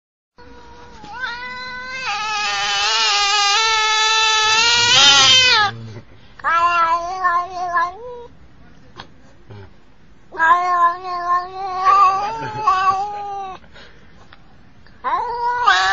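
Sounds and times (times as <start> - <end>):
cat yowling: 0.4 - 5.8, 6.4 - 8.3, 10.4 - 13.6, 15.0 - 15.9.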